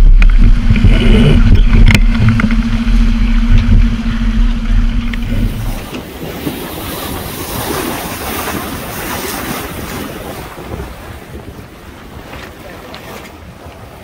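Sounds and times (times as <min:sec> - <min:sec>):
steady low hum: 0:00.0 - 0:06.5
seawater splashing along hull: 0:00.0 - 0:14.0
wind buffeting microphone: 0:00.0 - 0:14.0.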